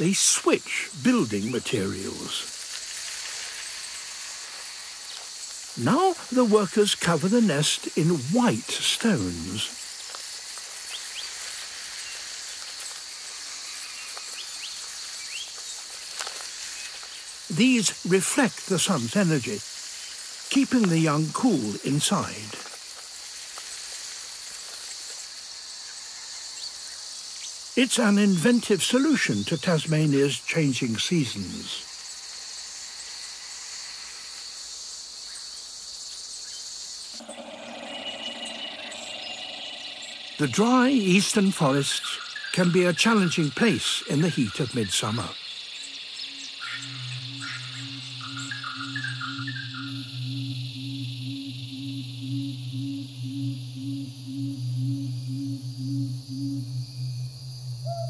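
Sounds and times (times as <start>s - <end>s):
even hiss: 0.0s - 57.9s
high-pitched insect drone: 0.0s - 58.0s
short rising chirps: 37.2s - 40.5s, 46.8s - 58.0s.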